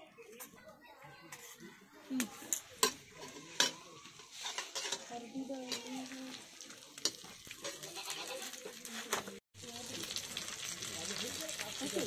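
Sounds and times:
steel ladle scraping a pan: 0:02.5 - 0:09.3
sizzle of frying: 0:02.5 - 0:12.0.

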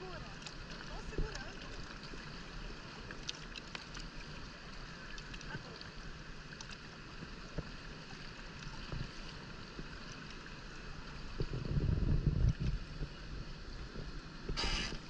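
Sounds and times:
water lapping against boat: 0:00.0 - 0:15.0
wind rumble on microphone: 0:11.0 - 0:15.0.

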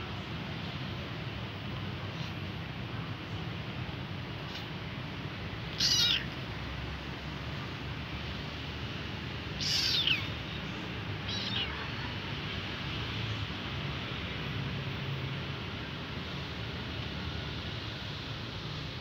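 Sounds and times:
kitten meowing: 0:05.7 - 0:06.4, 0:09.5 - 0:10.6, 0:11.2 - 0:12.2.

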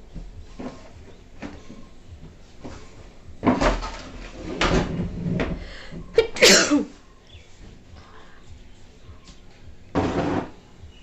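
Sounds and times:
woman sneezing: 0:06.2 - 0:07.0.

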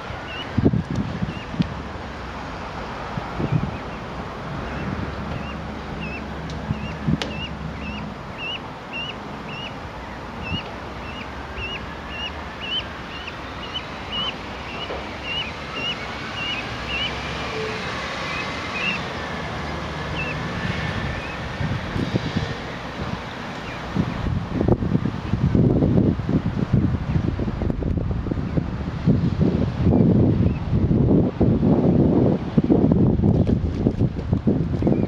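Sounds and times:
goslings peeping: 0:00.0 - 0:00.6, 0:01.2 - 0:01.7, 0:03.4 - 0:21.5, 0:23.3 - 0:24.7
wind on microphone: 0:00.0 - 0:35.0.

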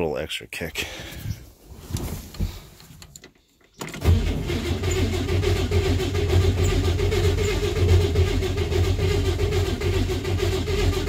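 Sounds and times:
starter motor cranking engine: 0:03.8 - 0:11.0.

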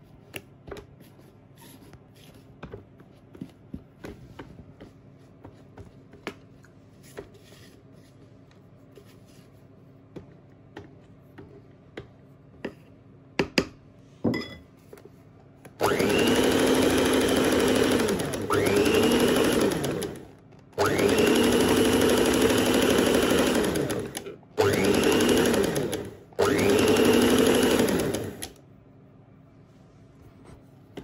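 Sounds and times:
electric mixer running: 0:15.8 - 0:28.6.

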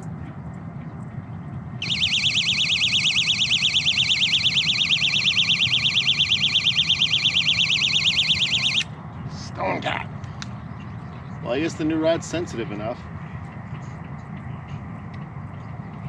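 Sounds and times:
warbling electronic bite alarm: 0:01.8 - 0:08.9.

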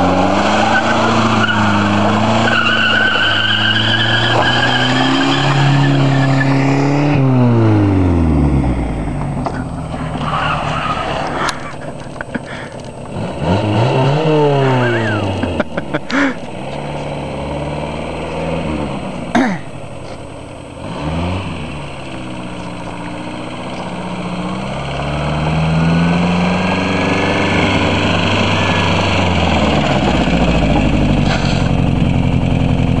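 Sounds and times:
car engine revving: 0:00.0 - 0:33.0.

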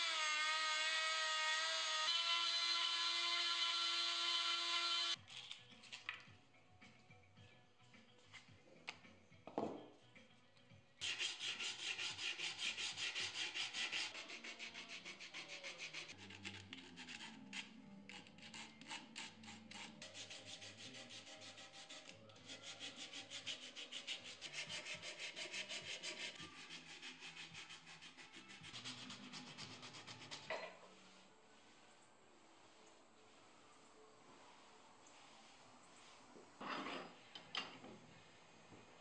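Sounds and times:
sandpaper rubbing wood: 0:11.0 - 0:30.5.

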